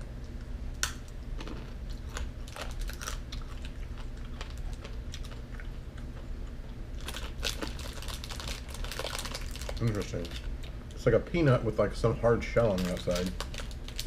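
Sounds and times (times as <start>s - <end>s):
chewing crunchy peanuts: 0.2s - 11.0s, 12.6s - 14.0s.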